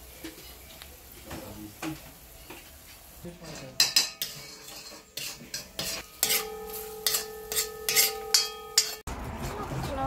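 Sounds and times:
metal utensil scraping metal pot: 0:03.4 - 0:09.1
struck pot ringing: 0:03.8 - 0:09.1.

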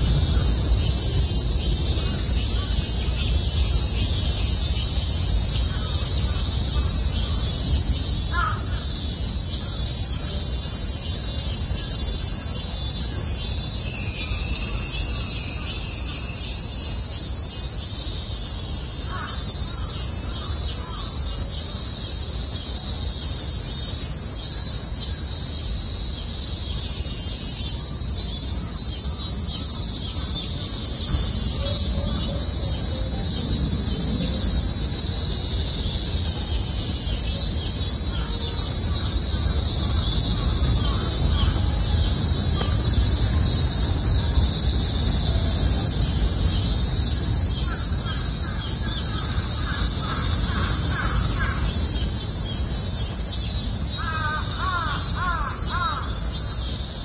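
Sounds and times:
low steady rumble: 0:00.0 - 0:08.3
cicada chorus: 0:00.0 - 0:57.0.

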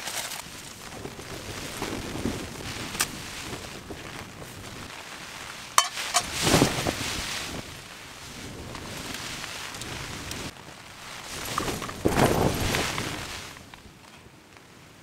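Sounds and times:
short rustle: 0:00.0 - 0:13.9
rain and wind on tent: 0:00.0 - 0:15.0
frying pan clanking on metal stand: 0:05.8 - 0:06.4.

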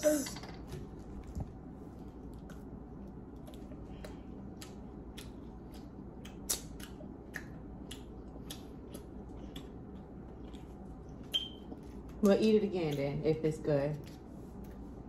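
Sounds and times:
low steady hum: 0:00.0 - 0:15.0
person chewing food: 0:02.0 - 0:12.2.

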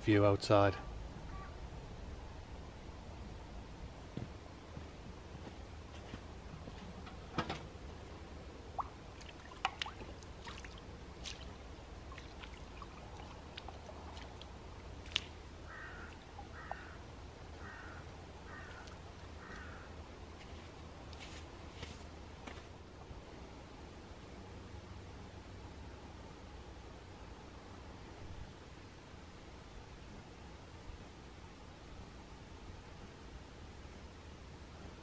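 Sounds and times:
bird giving harsh calls: 0:01.3 - 0:01.6, 0:15.7 - 0:17.0
water splashing and dripping: 0:08.7 - 0:16.6.

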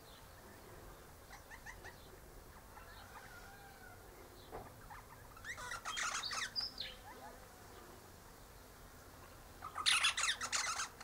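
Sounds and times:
parrot squawky chattering: 0:04.9 - 0:07.2, 0:09.6 - 0:11.0.

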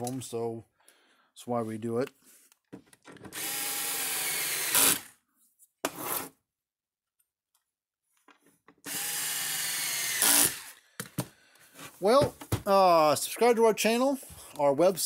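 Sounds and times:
cordless drill driving screws: 0:03.3 - 0:05.1, 0:08.8 - 0:10.8.

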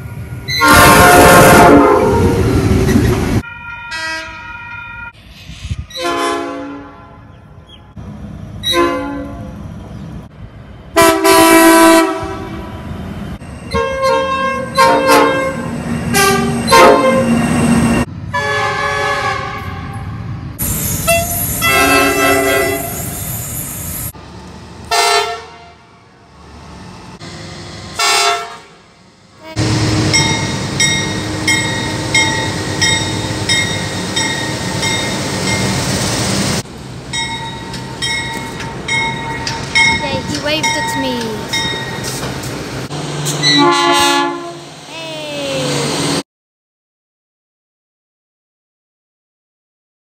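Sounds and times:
locomotive air horn blasts: 0:00.5 - 0:02.4, 0:03.5 - 0:05.1, 0:06.0 - 0:07.3, 0:08.6 - 0:09.6, 0:11.0 - 0:12.7, 0:13.7 - 0:17.4, 0:18.3 - 0:20.0, 0:21.1 - 0:23.0, 0:24.9 - 0:25.9, 0:28.0 - 0:28.8, 0:43.4 - 0:44.7.

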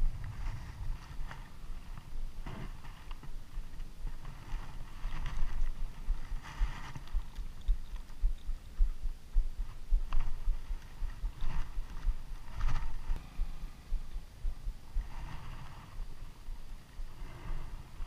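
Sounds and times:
wind and handling thumps on microphone: 0:00.0 - 0:18.0
faint rustles and taps: 0:00.2 - 0:13.2.

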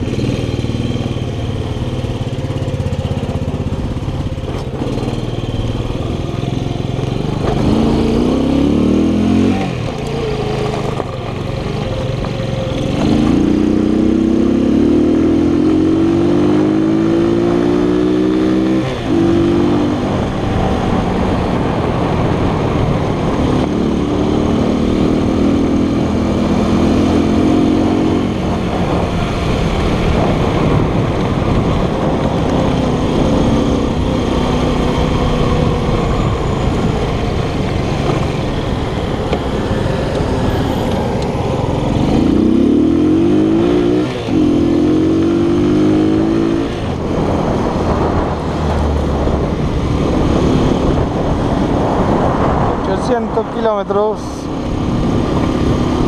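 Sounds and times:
scooter engine running: 0:00.0 - 0:16.2, 0:26.2 - 0:52.7
wind and road noise: 0:00.0 - 0:56.0.

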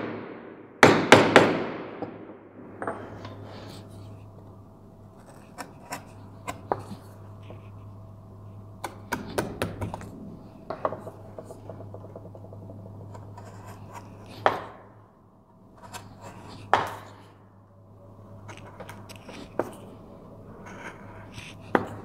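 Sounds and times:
low steady hum: 0:00.0 - 0:22.0
chisel cutting wood: 0:05.2 - 0:07.8, 0:20.6 - 0:22.0.

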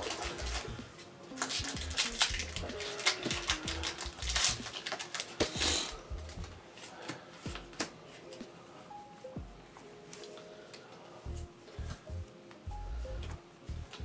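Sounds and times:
card rustle: 0:00.0 - 0:08.5
cards clicking and snapping: 0:01.3 - 0:08.4.

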